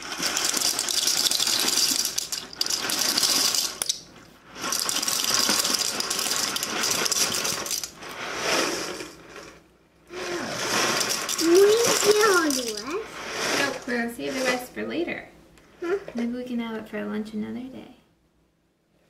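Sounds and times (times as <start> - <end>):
dry pasta rattling in a box: 0.0 - 9.2, 10.4 - 14.6.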